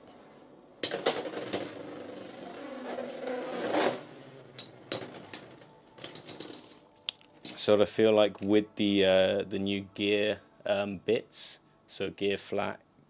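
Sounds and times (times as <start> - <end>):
spinning tops scraping: 0.9 - 6.7.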